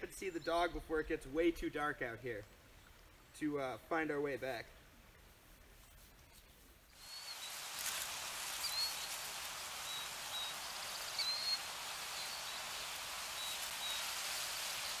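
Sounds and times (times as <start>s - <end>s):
steady hiss: 2.2s - 15.0s
high bird chirps: 9.8s - 12.7s.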